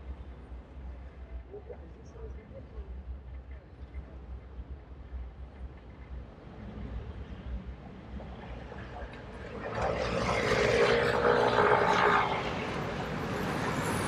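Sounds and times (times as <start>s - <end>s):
low road rumble: 0.0s - 14.0s
vehicle engine hum passing: 6.3s - 14.0s.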